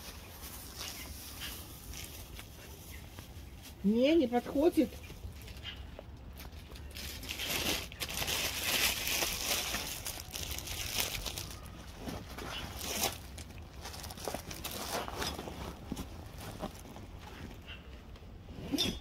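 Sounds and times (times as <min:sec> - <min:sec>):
packaging crinkling and rustling: 0:05.0 - 0:17.6.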